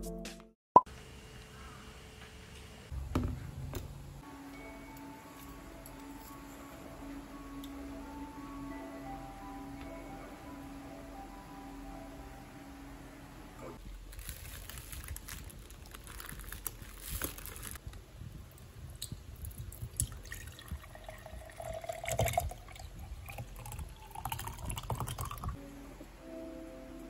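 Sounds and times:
plastic bag crinkling: 13.9s - 17.8s
liquid pouring into a glass: 19.9s - 25.6s.

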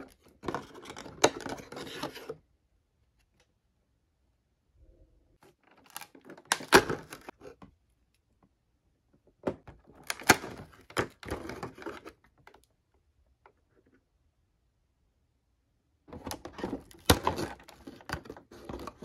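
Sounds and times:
cardboard and plastic packaging crackling: 16.2s - 19.0s.

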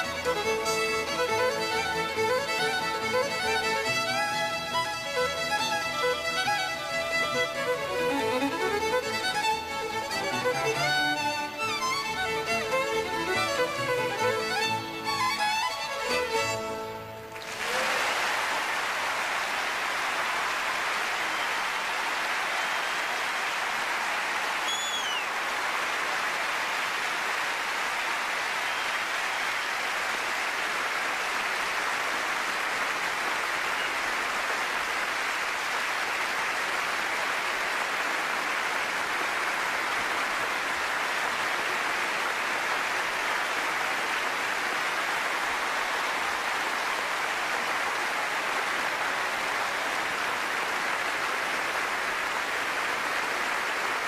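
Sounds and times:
audience applauding: 0.0s - 54.0s
high whistle: 24.6s - 25.3s.

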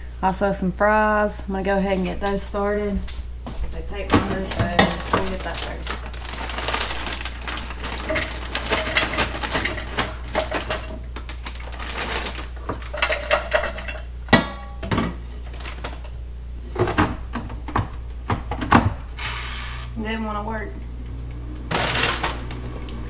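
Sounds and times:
bag crinkling: 3.9s - 13.9s, 21.7s - 22.6s
frozen fries clattering: 3.9s - 17.9s, 21.7s - 23.0s.

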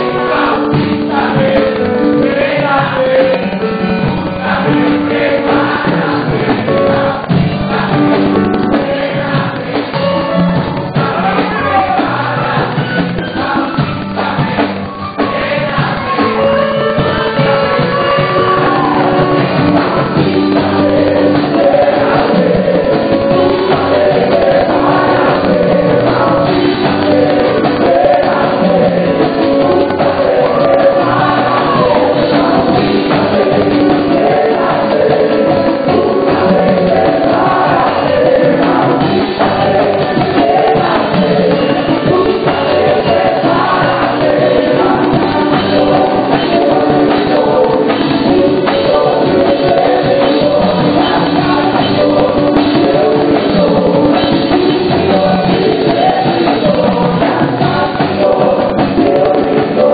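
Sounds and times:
backing singers: 0.0s - 59.9s
band with percussion: 0.0s - 59.9s
woman singing into microphone: 35.4s - 59.9s.

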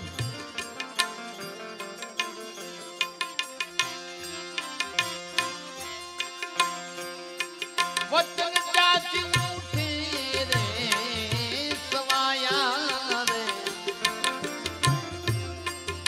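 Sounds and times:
man singing: 0.0s - 0.6s, 8.1s - 16.0s
hand drum beating: 0.0s - 1.2s, 9.1s - 16.0s
harmonium chords: 0.0s - 16.0s.

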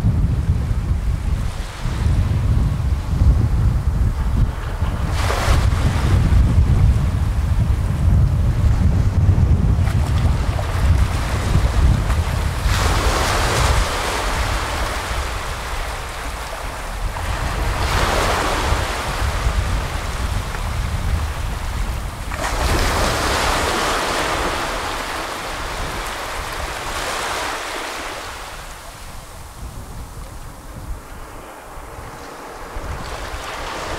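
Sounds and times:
sea waves washing up sandy shore: 9.5s - 33.9s.

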